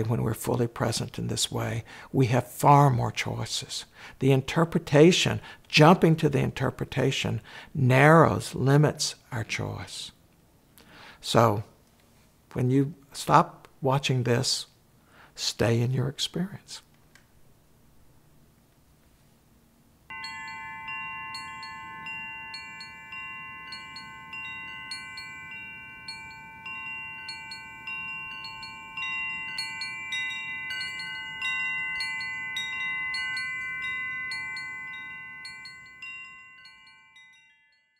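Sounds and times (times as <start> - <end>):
wind chimes ringing: 0.0 - 0.2, 20.1 - 37.9.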